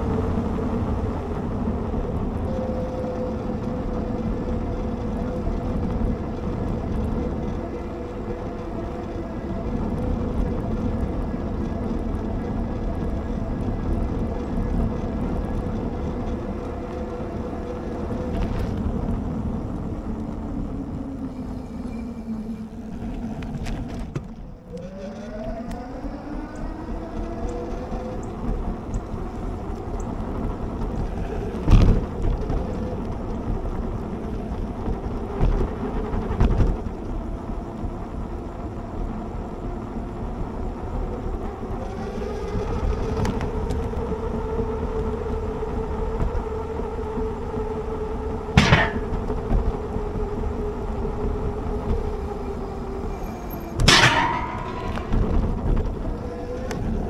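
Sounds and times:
electric hub motor whining: 0.0 - 57.0
wind rush: 40.4 - 57.0
bike knocking over bumps: 48.6 - 49.6.

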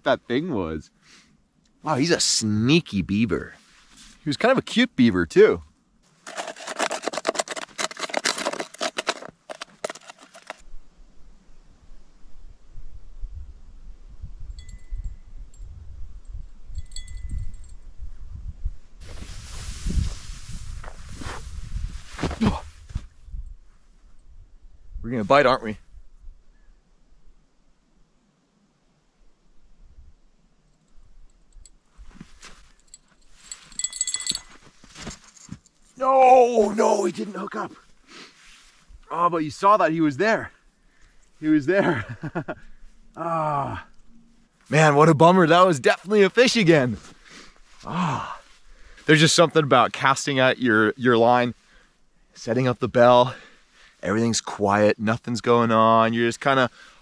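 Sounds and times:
gloved hands rubbing and clapping: 6.2 - 10.6
small bell jingling: 14.6 - 15.7, 16.7 - 17.8, 32.7 - 34.6.

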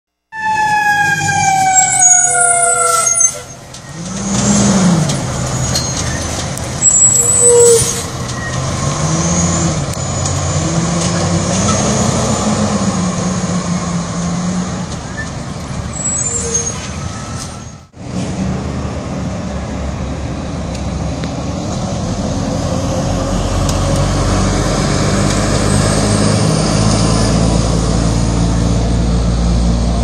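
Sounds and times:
fire engine siren winding down: 0.3 - 15.0
fire engine engine running: 0.4 - 16.2, 16.8 - 30.0.

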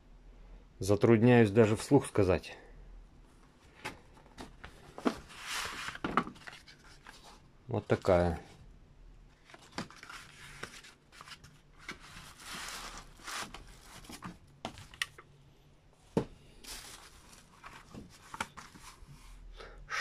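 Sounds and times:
cardboard rustling and sliding: 3.8 - 7.4, 9.4 - 14.9, 16.2 - 19.4.

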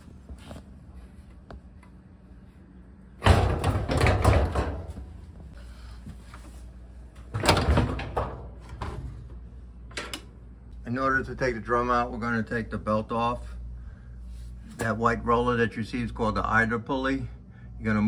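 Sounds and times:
metal panels clattering and scraping: 3.2 - 5.2.

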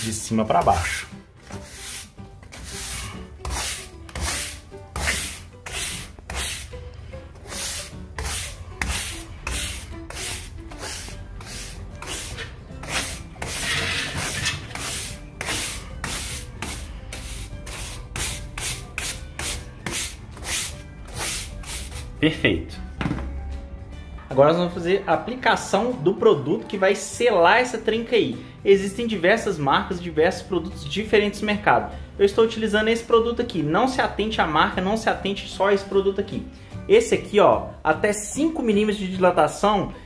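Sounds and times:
broom bristles brushing plaster wall: 0.0 - 6.8, 7.4 - 22.1.

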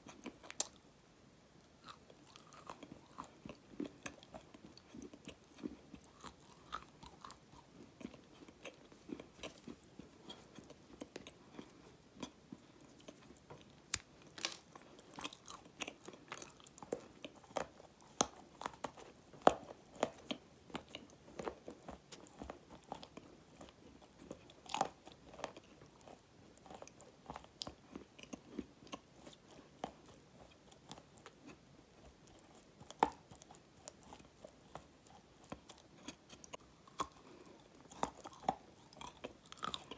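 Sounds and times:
chewing and crunching: 0.0 - 1.0, 1.6 - 39.9.

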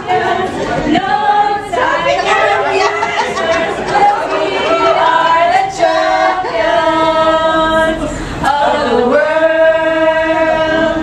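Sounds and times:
group singing unaccompanied: 0.0 - 11.0.

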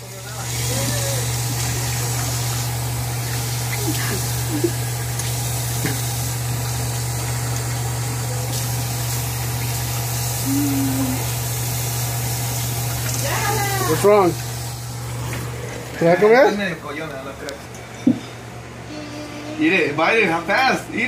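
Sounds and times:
sink tap running: 0.0 - 16.4
girl's faint vocal sounds: 10.4 - 11.3, 18.8 - 19.7.

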